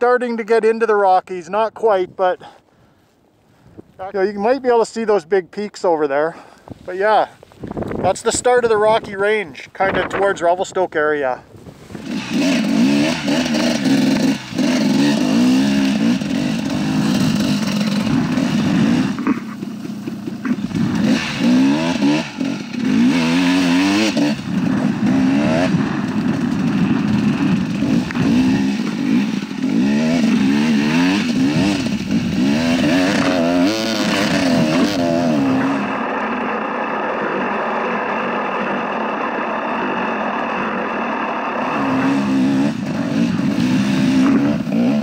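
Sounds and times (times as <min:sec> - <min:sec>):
dirt bike engine revving: 0:11.8 - 0:45.0.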